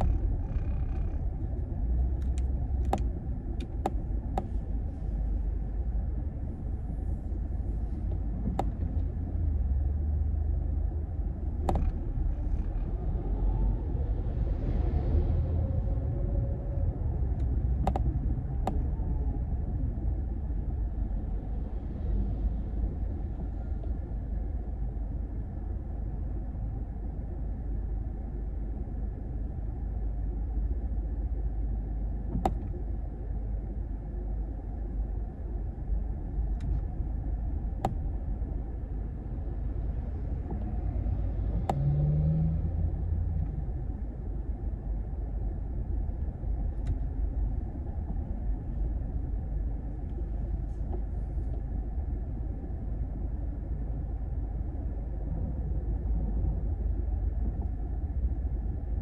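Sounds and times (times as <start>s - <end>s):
road and engine rumble: 0.0s - 59.0s.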